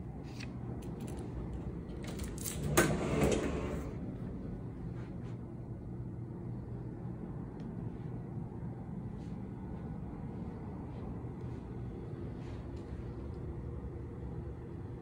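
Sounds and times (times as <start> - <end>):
low steady hum: 0.0 - 15.0
door sliding: 1.6 - 4.0.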